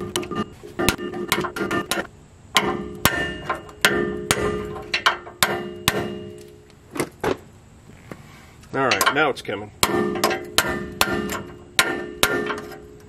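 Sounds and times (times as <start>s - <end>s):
hammer blows on metal: 0.0s - 6.6s.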